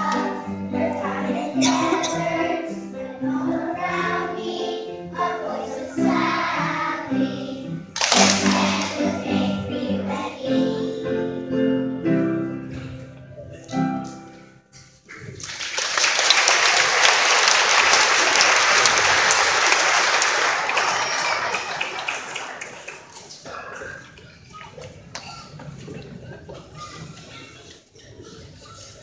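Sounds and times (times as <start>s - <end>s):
audience applauding: 8.0s - 9.2s, 15.3s - 23.7s.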